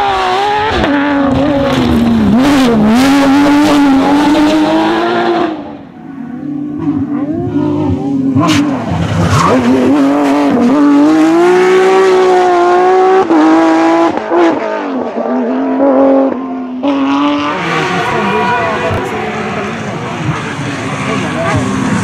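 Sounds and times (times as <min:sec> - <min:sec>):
rally car engine at high revs: 0:00.0 - 0:22.0.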